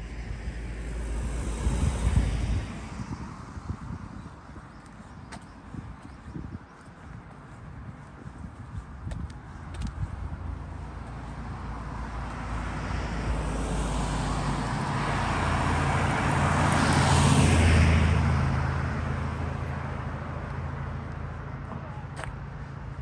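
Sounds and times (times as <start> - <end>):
truck driving past: 11.4 - 21.7.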